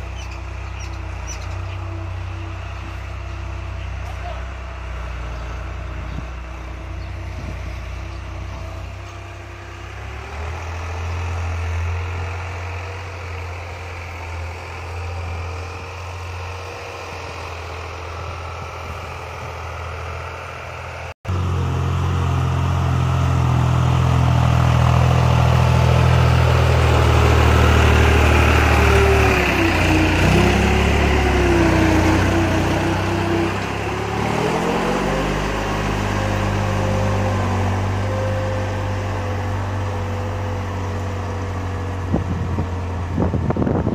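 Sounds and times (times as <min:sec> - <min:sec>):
tractor diesel engine running: 0:00.0 - 0:43.9.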